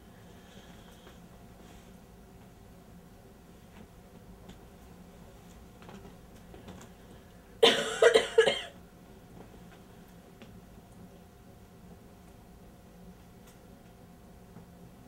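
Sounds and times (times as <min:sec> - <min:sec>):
person coughing: 0:07.6 - 0:08.8.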